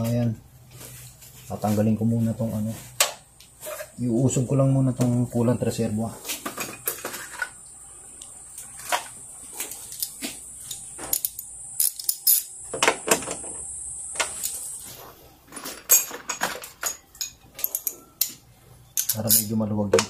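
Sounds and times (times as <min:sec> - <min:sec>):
tools clicking and clinking: 0:09.7 - 0:12.5, 0:15.5 - 0:18.4, 0:19.0 - 0:20.0.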